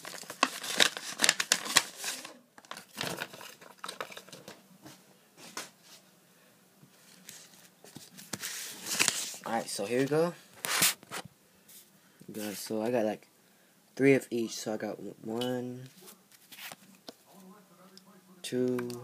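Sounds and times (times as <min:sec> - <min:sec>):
packaging crinkling and ripping: 0:00.0 - 0:04.6, 0:08.2 - 0:09.5.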